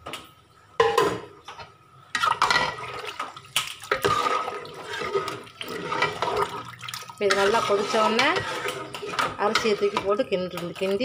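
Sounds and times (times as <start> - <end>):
liquid pouring and splashing into pot: 2.2 - 10.0.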